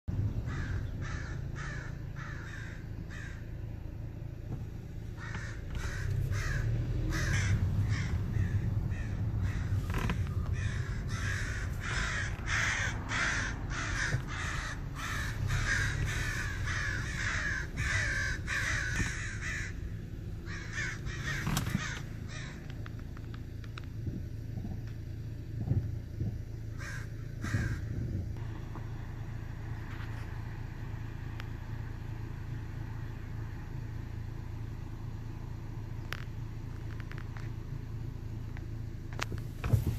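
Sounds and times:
low steady hum: 0.0s - 39.9s
crows cawing: 0.4s - 4.3s, 5.0s - 22.9s, 26.7s - 28.1s.

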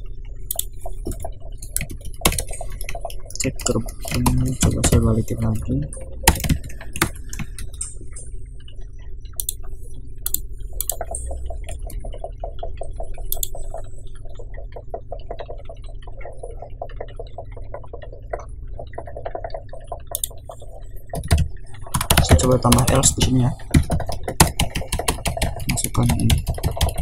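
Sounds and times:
keyboard keys tapping: 0.0s - 8.3s, 9.3s - 27.0s
steady low hum: 0.0s - 27.0s
mouse clicks: 10.2s - 11.4s.

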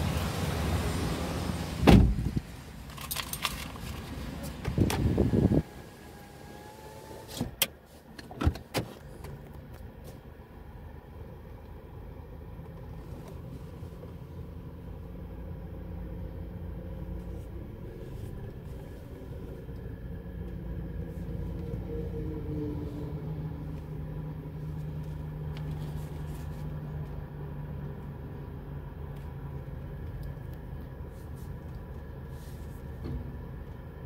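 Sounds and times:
car engine hum from inside cabin: 0.0s - 34.0s.

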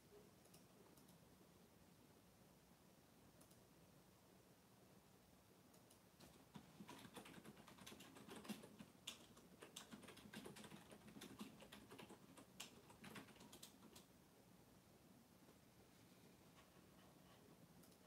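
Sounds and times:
faint irregular clicks and taps: 0.4s - 1.3s, 3.3s - 3.7s, 5.7s - 14.1s, 16.5s - 18.0s.

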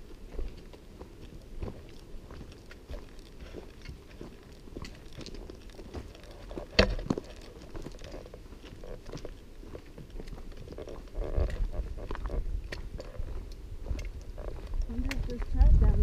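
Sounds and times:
footsteps crunching on dirt trail: 0.0s - 16.0s.

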